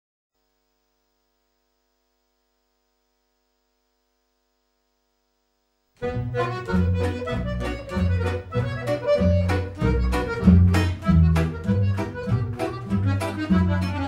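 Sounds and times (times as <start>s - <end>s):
electrical mains hum: 0.4s - 14.0s
music: 6.0s - 14.0s.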